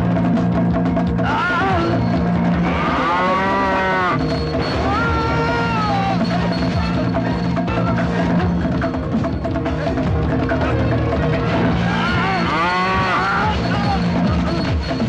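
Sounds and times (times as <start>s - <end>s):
dramatic film score with drums: 0.0s - 15.0s
bull bellowing: 1.2s - 6.7s, 11.8s - 14.0s.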